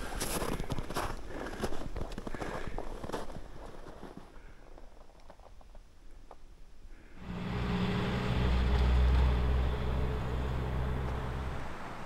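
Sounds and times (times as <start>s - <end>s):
road hiss: 7.0s - 12.0s
vehicle engine hum passing: 7.2s - 12.0s.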